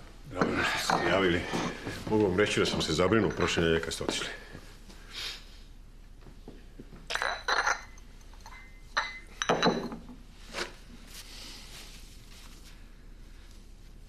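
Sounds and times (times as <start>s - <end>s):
porcelain cup and saucer clinking: 7.1s - 10.1s.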